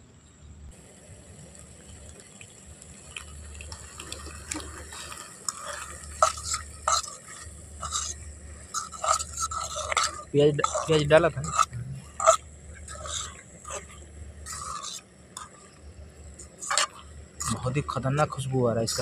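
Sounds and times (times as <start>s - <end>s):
metal spoon scraping pan: 4.5s - 19.0s.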